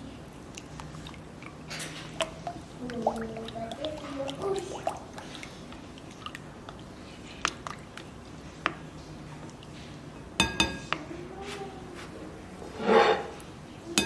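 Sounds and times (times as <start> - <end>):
spatula stirring wet batter: 0.0 - 14.0
spatula knocking glass bowl: 10.4 - 10.9.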